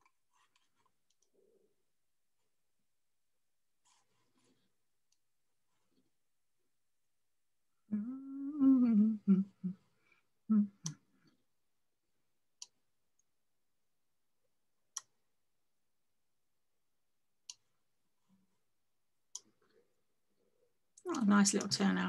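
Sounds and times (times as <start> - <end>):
person humming: 7.9 - 9.9, 10.5 - 11.0.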